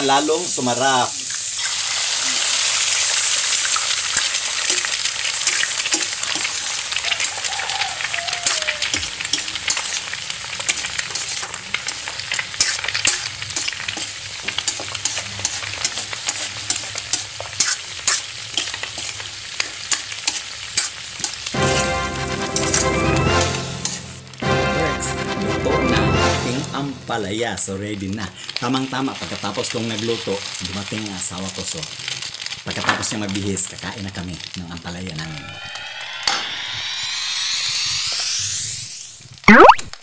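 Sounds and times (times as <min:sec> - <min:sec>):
egg sizzling in hot oil: 0:00.0 - 0:24.5, 0:28.1 - 0:40.0
spatula scraping a wok: 0:08.4 - 0:22.0, 0:23.8 - 0:24.2
music: 0:21.6 - 0:27.4.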